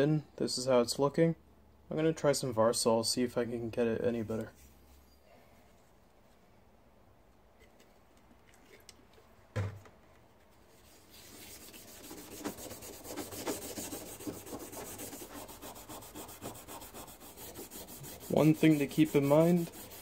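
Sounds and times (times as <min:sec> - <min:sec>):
scouring pad scrubbing rusty steel: 0:11.3 - 0:20.0.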